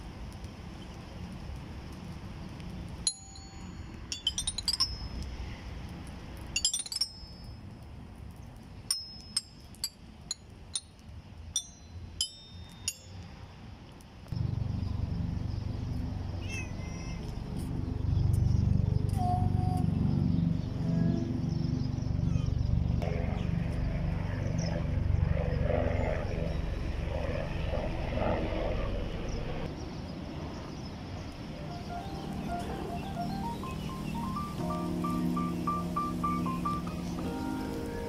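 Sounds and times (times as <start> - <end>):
low steady rumble: 0.0 - 29.7
chime bars ringing: 3.1 - 5.2, 11.6 - 13.2.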